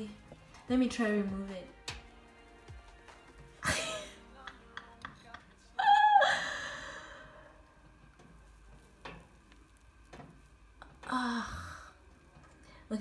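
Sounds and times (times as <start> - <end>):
person humming: 3.7 - 7.3.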